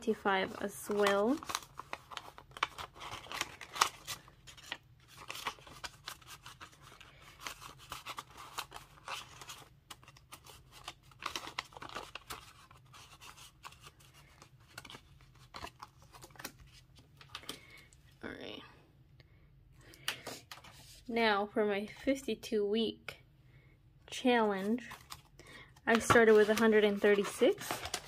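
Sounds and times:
plastic envelope crinkling: 0.0s - 17.9s, 24.6s - 28.0s
banknotes rustling and snapping: 0.6s - 17.9s, 24.7s - 28.0s.

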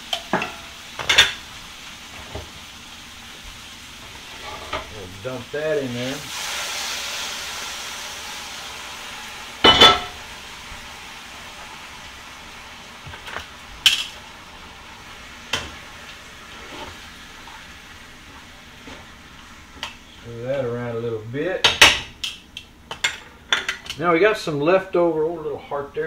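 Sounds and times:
faint sizzle in skillet: 0.0s - 26.0s
metal cookware clanging: 0.1s - 1.5s, 4.4s - 5.0s, 9.6s - 10.2s, 21.6s - 24.0s.

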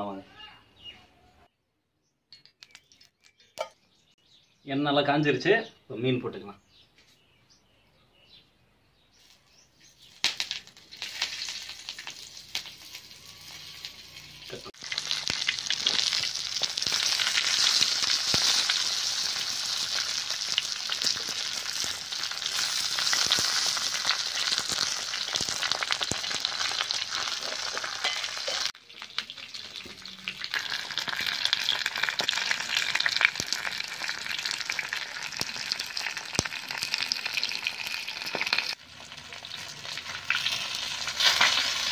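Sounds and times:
hot oil sizzling: 10.1s - 41.9s.

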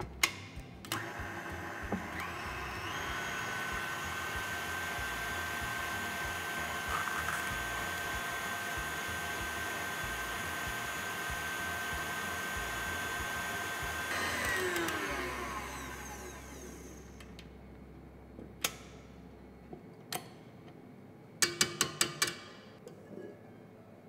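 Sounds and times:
stand mixer motor whining: 0.9s - 17.3s.

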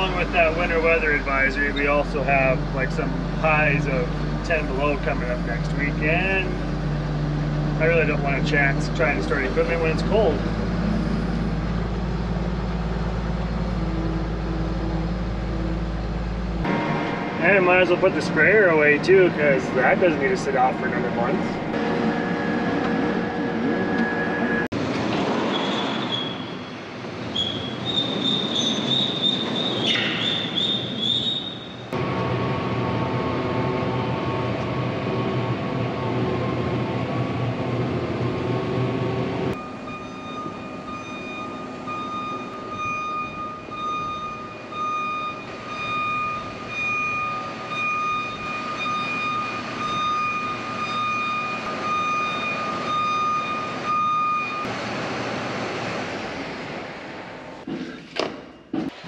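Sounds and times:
sprayer engine rumble: 0.0s - 23.2s
steady high whine: 11.6s - 24.8s, 31.9s - 57.7s.

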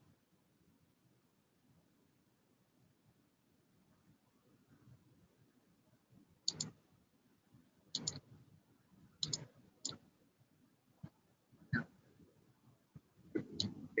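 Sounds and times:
computer mouse clicking: 6.5s - 6.8s, 7.9s - 8.2s, 9.2s - 10.0s.

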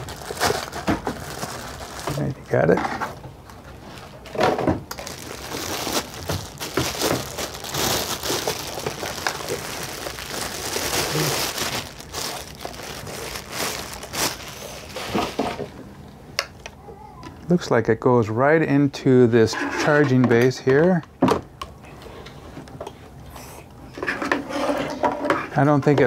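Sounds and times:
plastic bag and paper crinkling: 0.0s - 15.7s
handling noises: 0.0s - 17.5s.

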